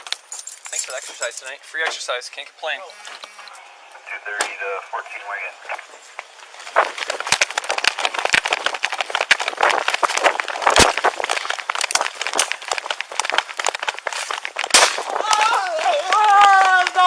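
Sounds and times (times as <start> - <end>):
camera rustling and clicking: 5.7 - 15.2.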